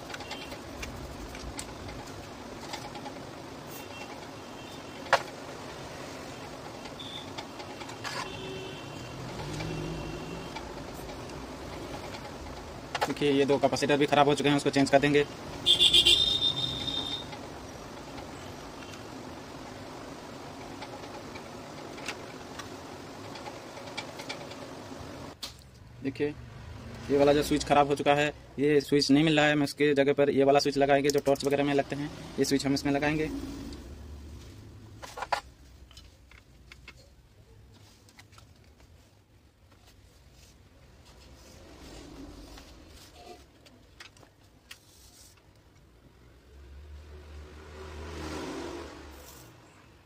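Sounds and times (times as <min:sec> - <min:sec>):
small tools clicking and tapping: 0:00.0 - 0:13.3, 0:16.7 - 0:25.8, 0:35.0 - 0:37.2
faint clicks of electronic parts: 0:34.9 - 0:39.0.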